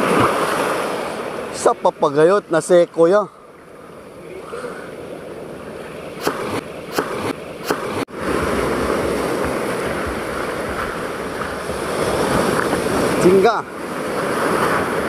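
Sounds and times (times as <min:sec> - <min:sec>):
surf washing on stony beach: 0:00.0 - 0:15.0
short sharp clicks: 0:06.2 - 0:08.0.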